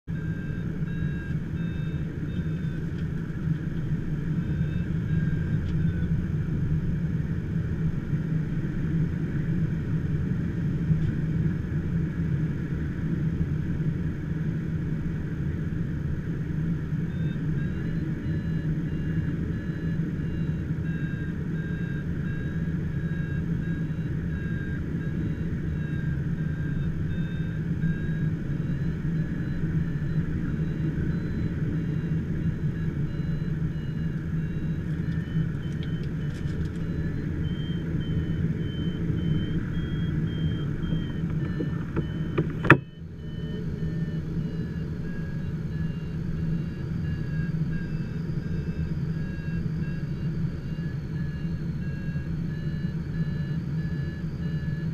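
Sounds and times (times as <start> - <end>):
cockpit rumble: 16.2 - 54.4
high electronic tone beeping: 23.9 - 54.9.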